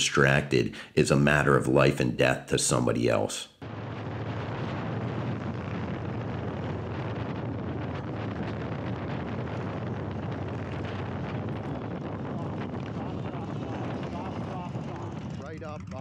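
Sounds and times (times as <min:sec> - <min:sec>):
wind buffeting microphone: 0:03.6 - 0:16.0.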